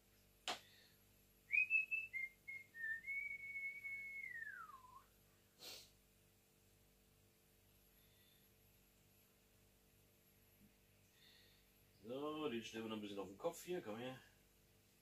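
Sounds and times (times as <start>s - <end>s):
person whistling: 1.5s - 5.1s.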